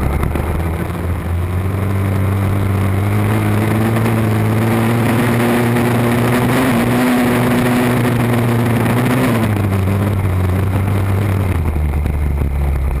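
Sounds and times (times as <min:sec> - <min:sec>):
small atv engine revving: 0:00.0 - 0:13.0.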